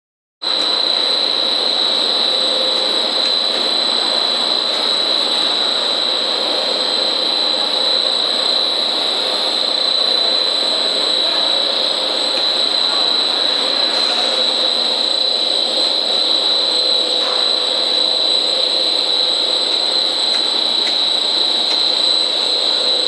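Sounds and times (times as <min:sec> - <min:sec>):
high steady machine whine: 0:00.4 - 0:23.0
loud steady machinery noise: 0:00.4 - 0:23.0.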